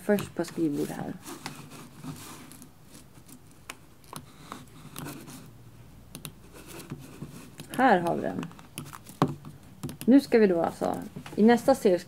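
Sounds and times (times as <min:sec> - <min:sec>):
laptop keyboard clicks and taps: 0:06.1 - 0:07.0, 0:07.6 - 0:10.2.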